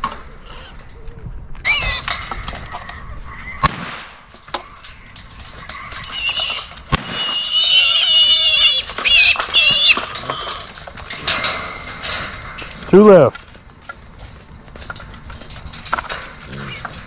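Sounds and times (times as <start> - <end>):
hogs squealing: 1.6 - 3.7, 4.7 - 10.7
sharp cracks: 3.6 - 17.0.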